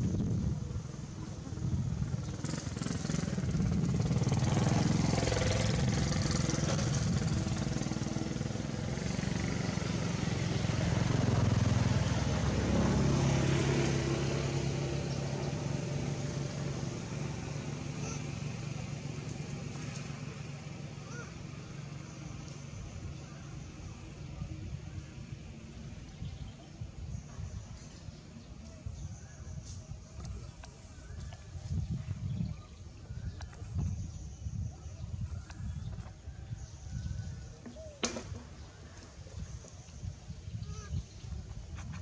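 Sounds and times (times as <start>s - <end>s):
motor vehicle engine running: 0.0s - 42.0s.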